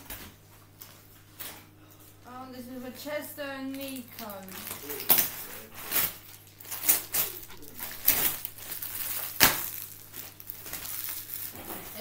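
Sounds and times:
wrapping paper rustling and tearing: 3.7s - 12.0s.

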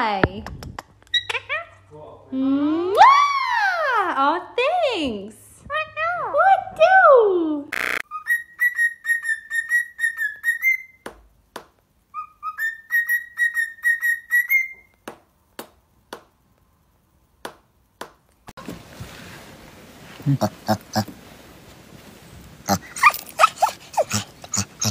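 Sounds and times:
cockatiel chirping: 12.2s - 14.8s.

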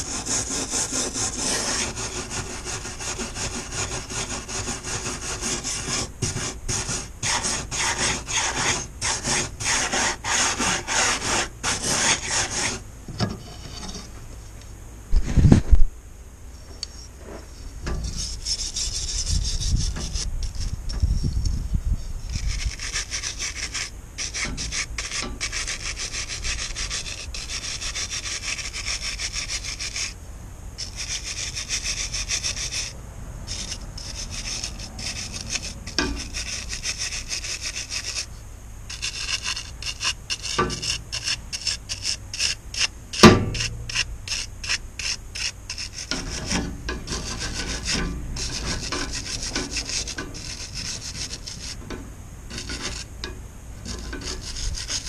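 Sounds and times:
knife scraping rubber strip: 0.0s - 12.8s, 17.4s - 21.2s, 22.3s - 30.2s, 30.8s - 32.9s, 33.5s - 38.3s, 38.9s - 51.9s, 52.5s - 53.1s, 53.8s - 55.0s
wire brush scrubbing: 0.0s - 12.8s, 22.3s - 30.2s, 33.5s - 38.3s, 38.9s - 55.0s.

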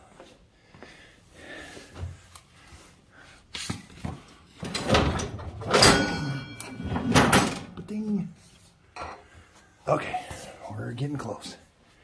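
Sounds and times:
metallic ring: 5.7s - 7.0s.

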